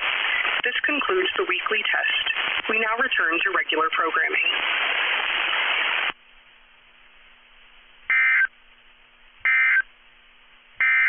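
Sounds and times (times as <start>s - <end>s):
radio static burst: 0.0s - 6.2s, 8.1s - 8.5s.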